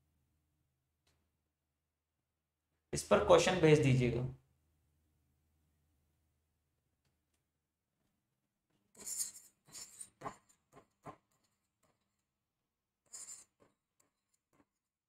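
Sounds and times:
stylus writing on touchscreen: 9.0 - 12.2, 13.1 - 14.7.

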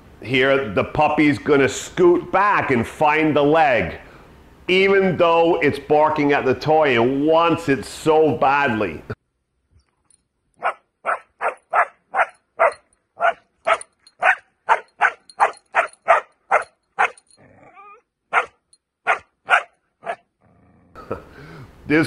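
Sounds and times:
puppy whining: 10.6 - 20.2
puppy barking: 10.6 - 20.3.

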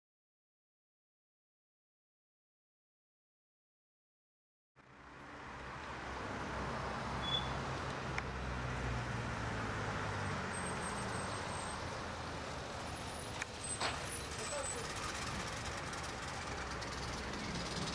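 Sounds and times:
road noise: 4.8 - 17.9
vehicle engine hum: 4.8 - 17.9.

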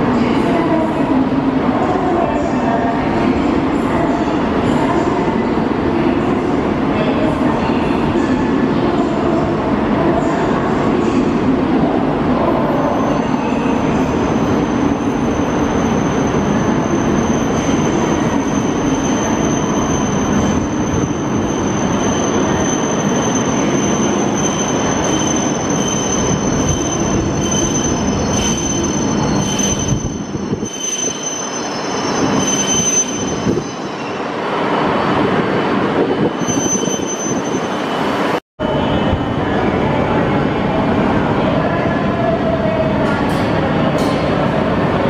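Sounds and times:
high brake squeal: 12.8 - 34.2, 36.3 - 39.0.

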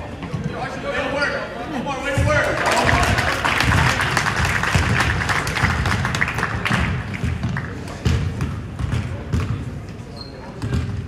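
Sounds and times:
crowd clapping and calling out: 2.3 - 8.0
ball bouncing: 4.7 - 6.1, 6.7 - 9.8, 10.6 - 11.0.

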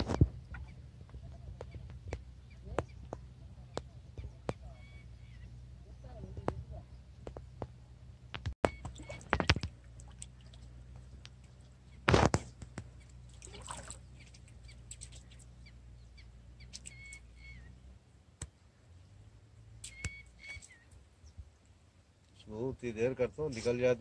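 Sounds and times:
bird calling: 0.0 - 7.8, 8.6 - 17.9, 19.8 - 22.4
shallow river water splashing: 8.6 - 22.3.

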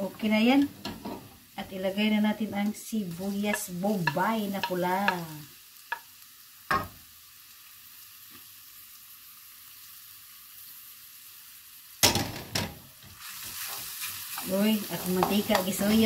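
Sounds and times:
onions sizzling in oil: 0.0 - 16.0
wooden spoon knocking on wok: 15.0 - 16.0.

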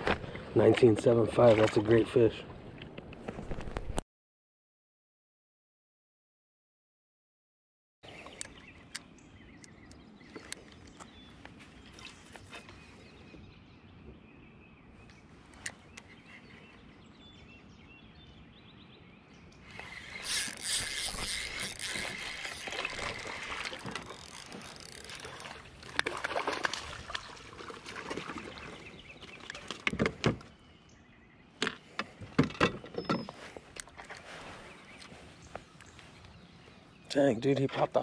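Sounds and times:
water splashing: 19.8 - 29.8.

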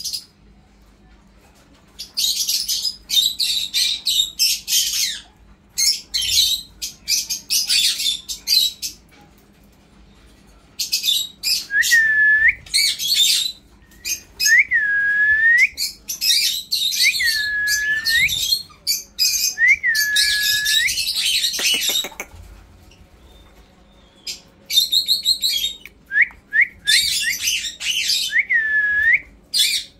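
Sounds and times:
parakeet chattering: 21.2 - 22.4.

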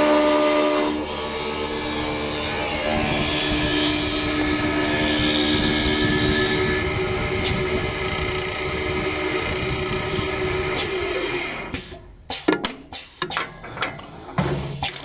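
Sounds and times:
lathe motors whining: 0.0 - 12.0
rough wood cutting noise: 0.0 - 12.0.

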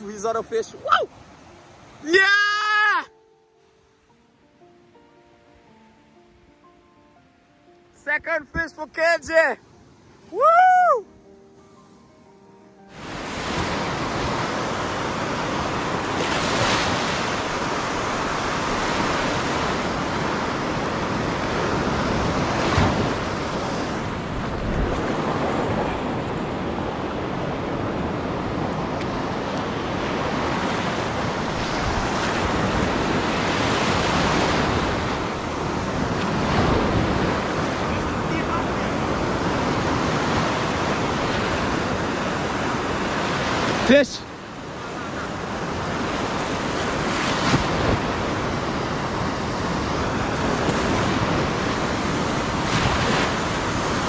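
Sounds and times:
ocean surf breaking: 0.0 - 4.3, 12.9 - 54.0
wind buffeting microphone: 13.0 - 43.7, 44.6 - 54.0.

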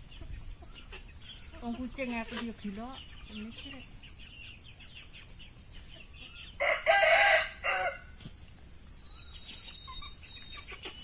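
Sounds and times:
rooster crowing: 6.6 - 8.1.

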